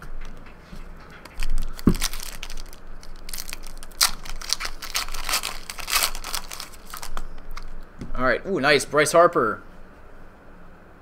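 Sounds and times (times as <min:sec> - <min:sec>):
foil wrapper tearing and crinkling: 0:01.3 - 0:07.8.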